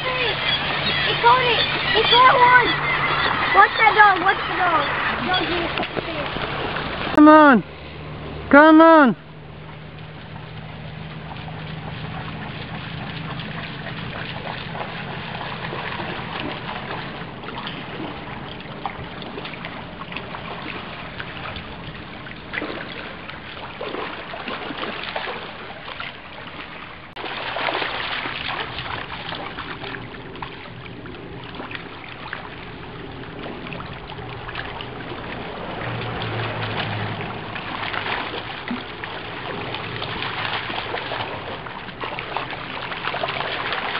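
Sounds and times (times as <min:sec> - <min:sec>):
dog splashing through water: 0:00.0 - 0:07.2, 0:09.4 - 0:43.9
river water over stones: 0:00.0 - 0:43.9.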